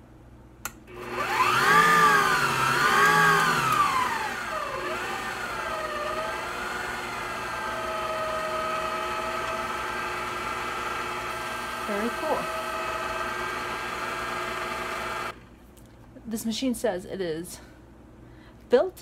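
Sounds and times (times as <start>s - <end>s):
stand mixer motor whine: 0.9s - 15.4s.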